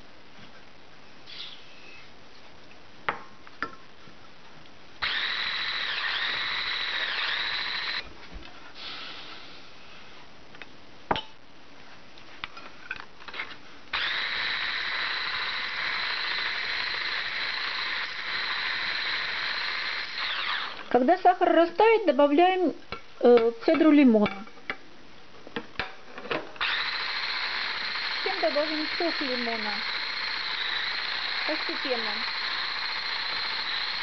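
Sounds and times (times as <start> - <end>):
stick blender motor whining: 5.0 - 8.0, 13.9 - 21.0, 26.6 - 34.0.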